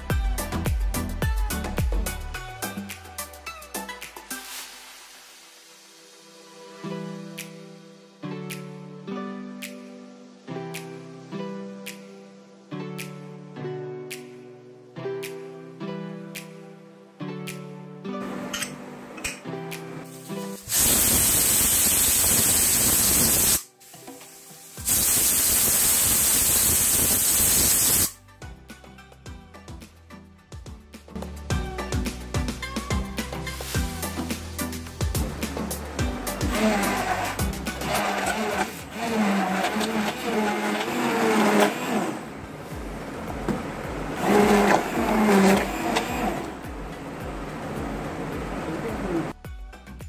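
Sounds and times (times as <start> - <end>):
pressure cooker whistling: 20.7 - 23.6, 24.9 - 28.1
immersion blender motor: 36.3 - 42.4, 44.1 - 46.7.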